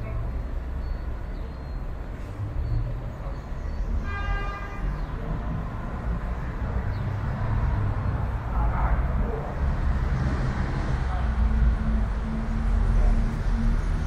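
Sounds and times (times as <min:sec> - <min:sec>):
city street traffic rumble: 0:00.0 - 0:14.0
vehicle horn: 0:04.0 - 0:05.1.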